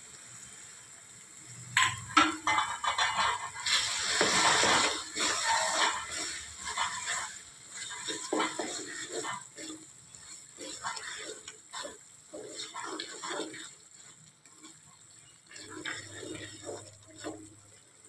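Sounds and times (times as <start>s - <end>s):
spatula scraping pan: 1.8s - 18.0s
thick curry squelching: 5.0s - 17.8s.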